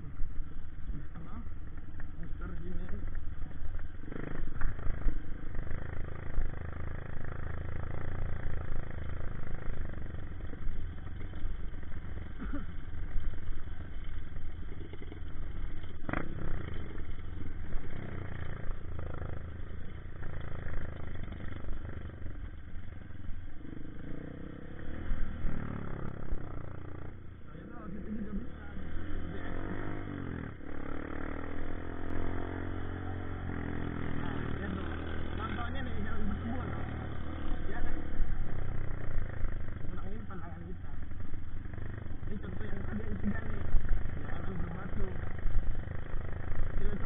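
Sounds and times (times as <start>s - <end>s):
motorbike engine running: 0.0s - 47.0s.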